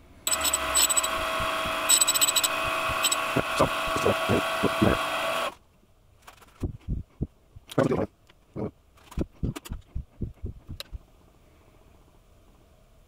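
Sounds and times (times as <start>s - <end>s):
electric motor humming: 0.3s - 5.6s
grinding wheel scraping drill bit: 0.3s - 5.6s.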